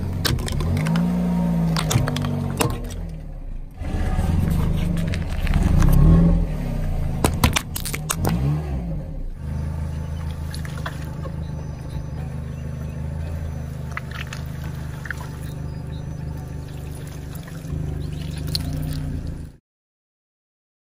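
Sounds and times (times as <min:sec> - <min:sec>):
car engine idling: 0:00.0 - 0:19.6
sharp cracks: 0:07.2 - 0:08.5
squeeze toys squeaking under tyre: 0:09.5 - 0:19.4.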